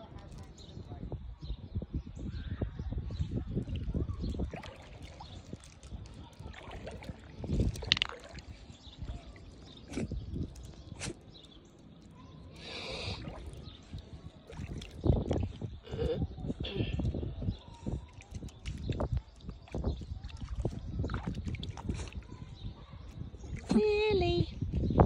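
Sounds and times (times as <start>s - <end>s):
shallow water sloshing on rocks: 4.3s - 11.7s.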